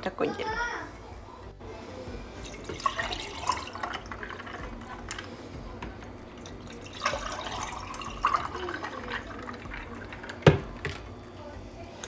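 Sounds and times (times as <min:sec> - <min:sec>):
water pouring over ice: 0:02.4 - 0:05.3, 0:06.1 - 0:11.0.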